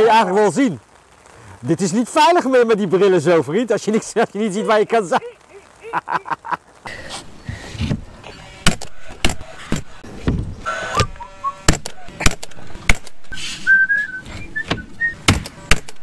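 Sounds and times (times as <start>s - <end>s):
nail gun firing: 8.6s - 9.9s, 10.9s - 13.2s, 15.3s - 16.0s.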